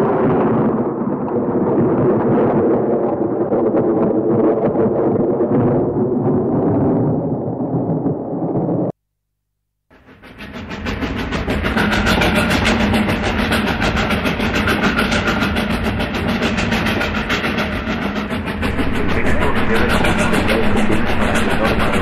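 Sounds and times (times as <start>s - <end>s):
low hum: 10.0s - 22.0s
radio static: 18.6s - 22.0s.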